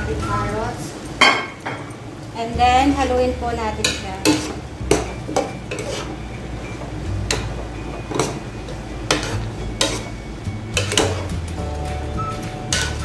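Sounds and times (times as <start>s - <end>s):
food simmering hiss: 0.0s - 1.2s
metal spoon scraping a pan: 3.8s - 11.4s, 12.6s - 13.0s.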